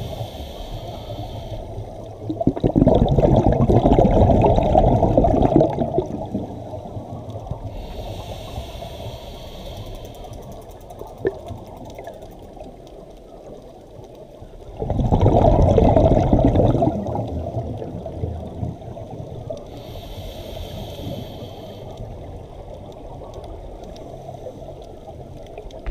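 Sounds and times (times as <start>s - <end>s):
regulator inhalation hiss: 0.0s - 2.1s, 7.6s - 10.6s, 19.7s - 22.2s
exhaled bubbles rushing: 2.2s - 7.2s, 14.7s - 19.3s.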